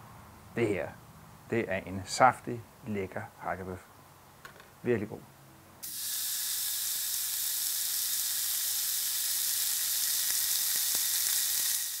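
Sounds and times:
meat patty sizzling on grill: 0:05.8 - 0:12.0.

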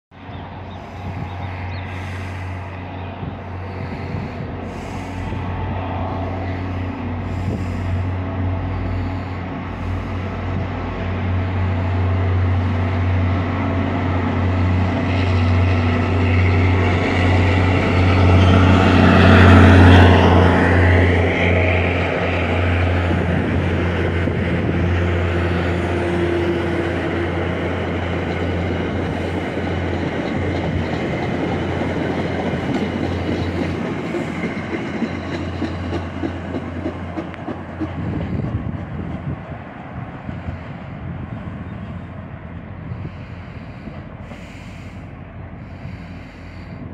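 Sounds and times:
diesel locomotive engine hum: 0:00.1 - 0:46.9
train wheels clicking over rail joints: 0:22.9 - 0:39.4.

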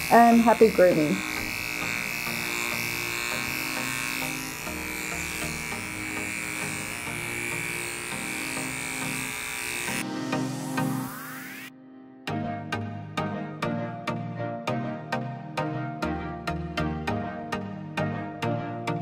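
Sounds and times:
dog clipper humming: 0:00.0 - 0:11.6.

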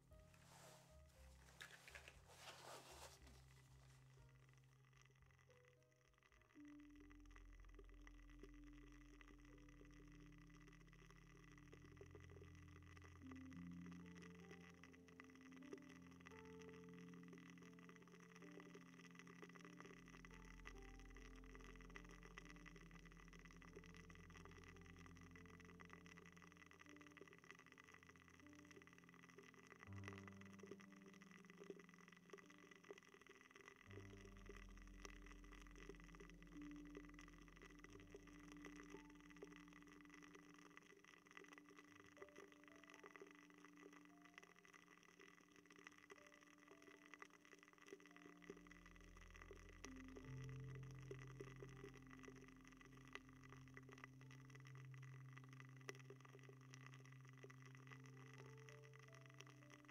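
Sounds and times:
soft clicks and taps: 0:00.0 - 0:04.4
low electrical hum: 0:00.0 - 0:59.9
low steady tones: 0:00.0 - 0:59.9
soft clicks and crackles: 0:00.0 - 0:59.9.

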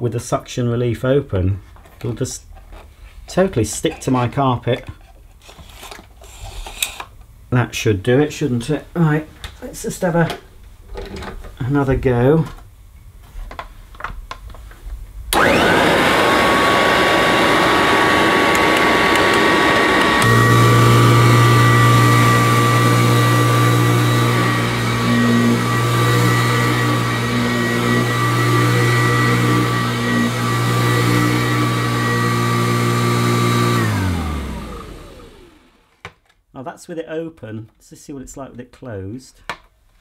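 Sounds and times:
vacuum cleaner motor whine: 0:15.3 - 0:35.9.

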